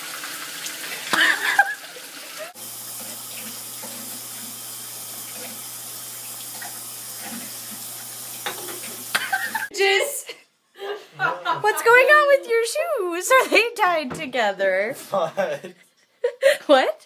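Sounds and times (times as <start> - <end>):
tap water running: 0.0 - 9.7.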